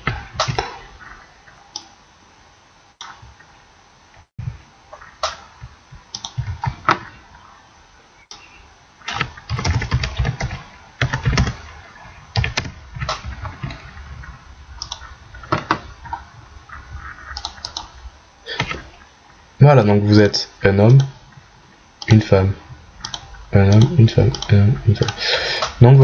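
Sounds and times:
computer keyboard typing: 9.1 - 11.6.

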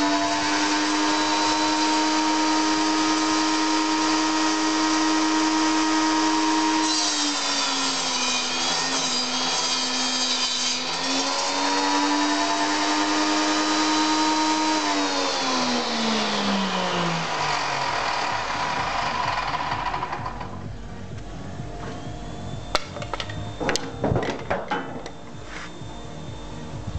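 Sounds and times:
saw blade cutting wood: 0.0 - 20.7, 22.7 - 26.5
table saw motor whining: 0.0 - 26.9.

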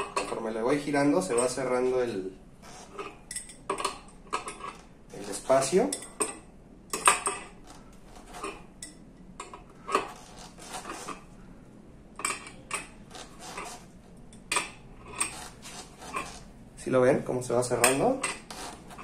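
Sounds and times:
tool clinking on metal: 1.3 - 1.7, 3.0 - 4.8, 5.7 - 7.6, 17.7 - 18.5.

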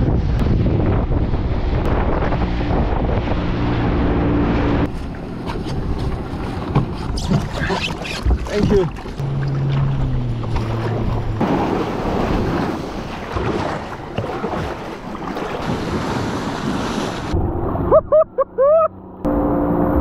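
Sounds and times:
wind buffeting microphone: 0.0 - 17.9
rushing sea water: 0.0 - 18.2
short rising and falling cries: 17.7 - 20.0.

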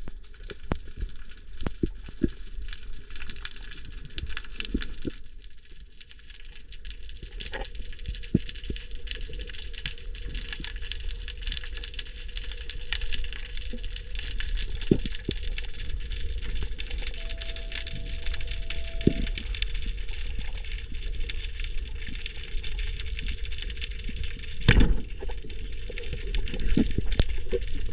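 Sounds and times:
crackling hiss: 0.0 - 27.9
low rumble: 15.9 - 21.1
thin tone: 16.9 - 19.9.

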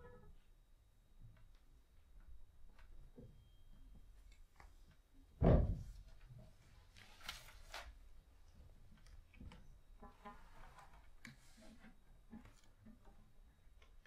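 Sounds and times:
loud low ringing thump: 5.4 - 5.9.

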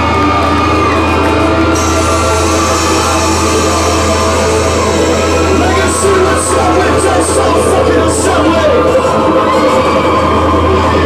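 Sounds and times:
high cymbal hits: 0.0 - 8.2.

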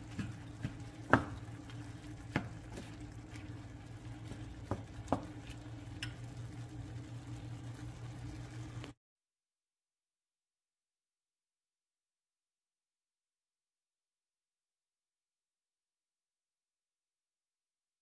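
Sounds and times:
spatula knocking against pan: 0.0 - 3.0, 4.6 - 5.4
wooden spatula stirring: 0.0 - 6.3
low steady hum: 0.0 - 9.0
meat frying in a pan: 0.0 - 9.0.

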